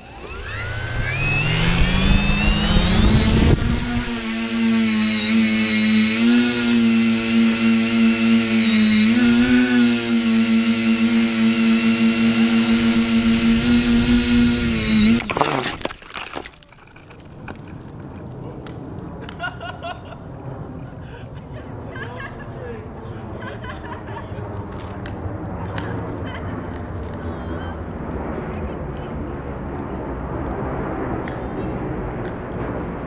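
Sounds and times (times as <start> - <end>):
drone crashing into branches: 0.0 - 6.5, 11.5 - 18.8
drone motors buzzing: 0.0 - 18.4.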